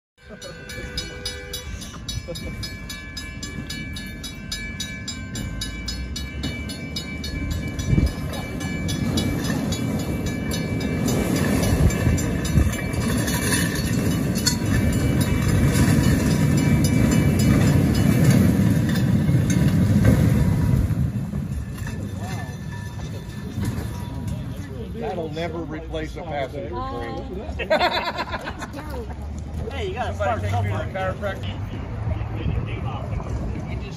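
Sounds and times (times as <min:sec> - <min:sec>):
railcar wheels rumbling: 0:00.2 - 0:26.6, 0:27.7 - 0:33.9
wheels clacking over rail joints: 0:00.3 - 0:26.2.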